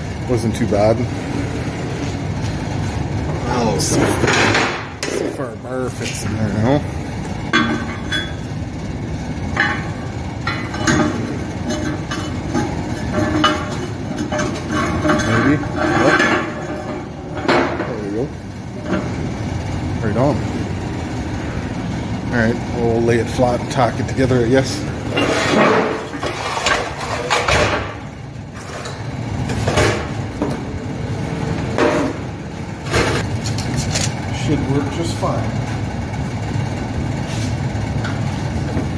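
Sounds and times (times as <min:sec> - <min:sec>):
steady background noise: 0:00.0 - 0:38.9
steady low hum: 0:00.0 - 0:38.9
steel scraping clanks: 0:09.6 - 0:17.8, 0:25.1 - 0:27.8.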